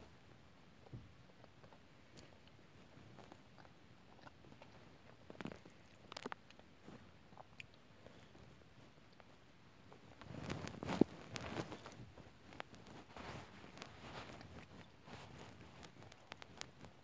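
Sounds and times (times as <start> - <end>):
biting and chewing cake: 0.8 - 9.2.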